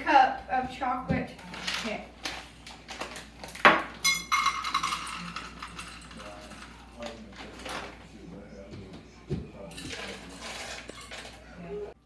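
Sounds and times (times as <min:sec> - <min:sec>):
chocolate chips clinking in metal cup: 0:04.0 - 0:06.8.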